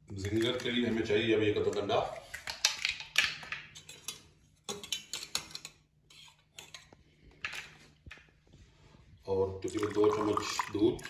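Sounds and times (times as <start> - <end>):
kitchen utensils and dishes clinking: 2.4 - 7.8.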